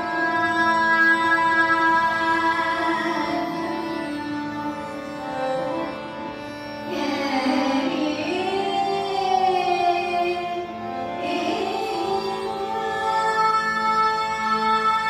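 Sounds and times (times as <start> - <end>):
tanpura drone: 0.0 - 15.0.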